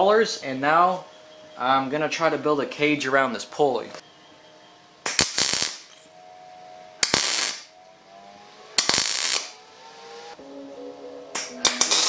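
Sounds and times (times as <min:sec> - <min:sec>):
welding arc crackling: 0:05.0 - 0:05.9, 0:07.0 - 0:07.8, 0:08.8 - 0:09.6, 0:11.4 - 0:12.0.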